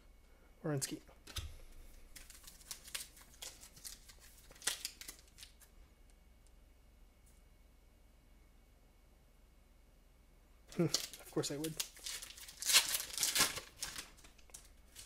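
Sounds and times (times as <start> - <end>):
foil card pack rustling: 2.1 - 5.7, 10.7 - 15.0.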